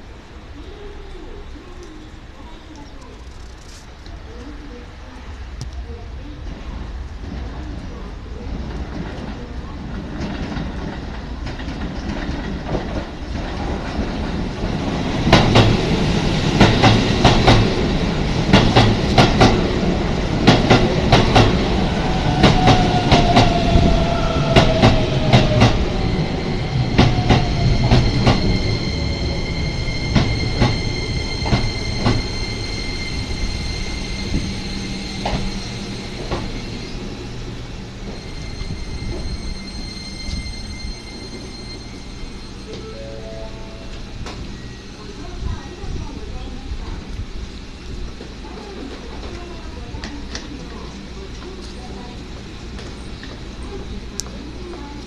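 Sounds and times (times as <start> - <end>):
train rumble: 0.0 - 55.0
train high whine: 13.1 - 55.0.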